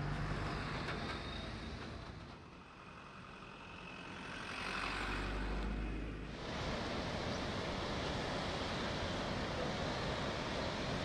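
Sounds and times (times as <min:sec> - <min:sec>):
flash flood roaring: 0:06.3 - 0:11.0.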